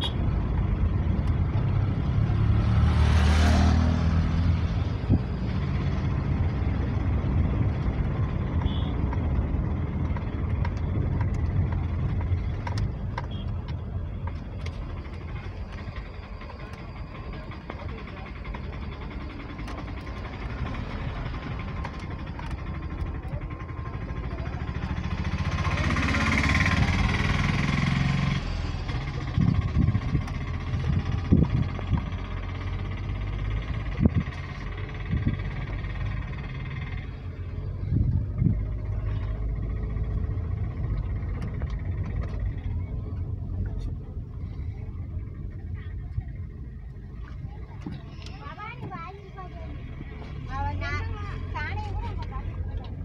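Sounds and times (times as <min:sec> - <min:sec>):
car engine: 0:00.0 - 0:53.0
road noise inside car: 0:00.0 - 0:53.0.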